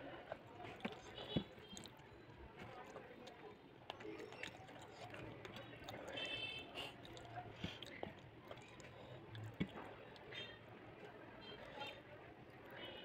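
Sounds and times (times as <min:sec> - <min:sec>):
person chewing food: 0:00.6 - 0:10.3.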